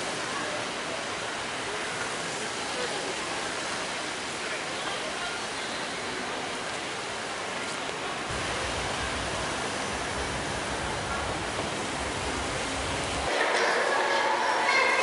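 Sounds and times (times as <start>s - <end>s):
rushing outdoor noise: 0.0s - 15.0s.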